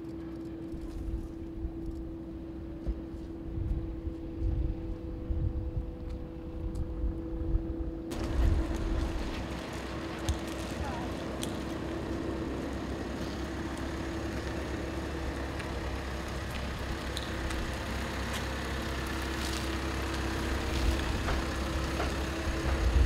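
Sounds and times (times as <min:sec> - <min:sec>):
steady hum: 0:00.0 - 0:23.0
truck engine driving past: 0:08.0 - 0:23.0.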